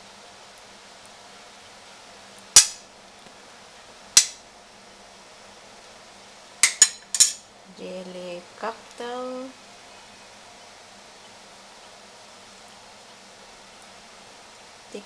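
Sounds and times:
metal spoon clinking on ceramic plate: 6.6 - 7.4.

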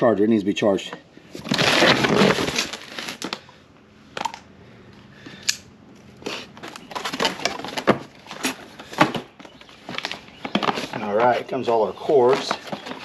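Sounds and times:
cardboard box being opened: 1.3 - 3.4.

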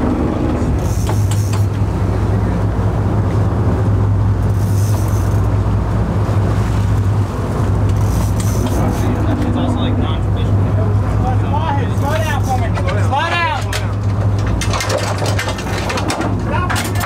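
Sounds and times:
boat engine droning: 0.0 - 17.0
water noise: 0.0 - 17.0
wind: 0.0 - 17.0.

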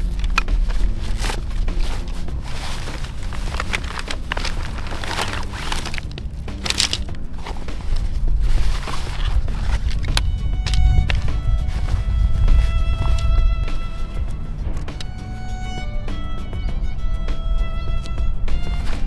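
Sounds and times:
fabric sack rustling: 0.0 - 14.6.

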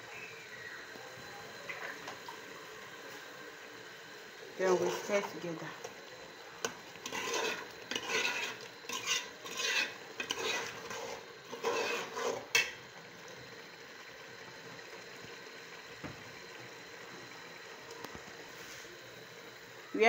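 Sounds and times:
ladle scraping metal pot: 6.7 - 12.8.

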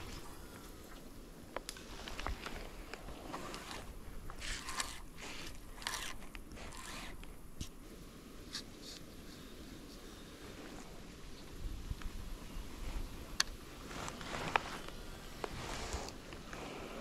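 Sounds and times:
rustling scraping and crunching: 1.8 - 7.8, 13.8 - 16.8.

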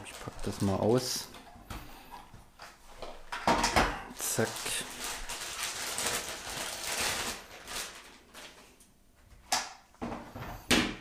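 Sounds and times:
plastic packaging rustling: 0.0 - 1.4, 4.1 - 8.8.

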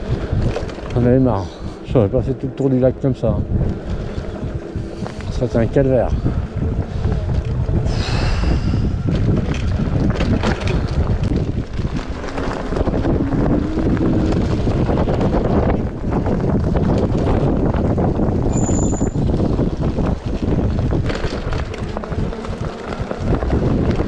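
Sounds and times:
bike knocks and rattles: 0.0 - 1.4, 9.0 - 24.0
wind rushing over microphone: 0.0 - 24.0.

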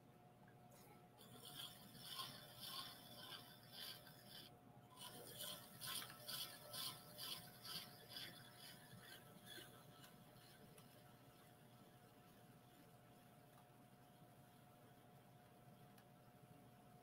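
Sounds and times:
metal tool scraping clay: 1.2 - 13.0.

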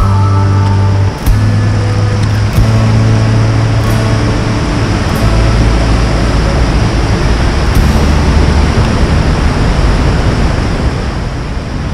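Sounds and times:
whitewater roaring: 0.0 - 11.9.

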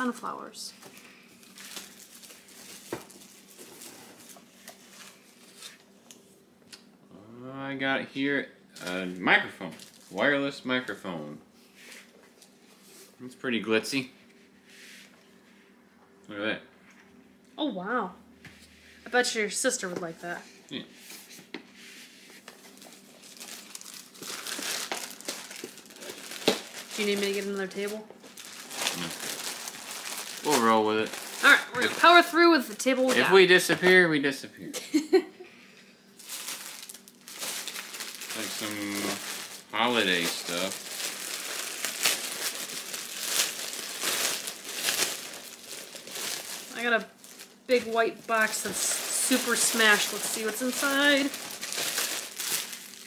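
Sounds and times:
packaging rustling: 0.9 - 5.8, 9.8 - 10.2, 22.5 - 32.3, 36.2 - 53.0.

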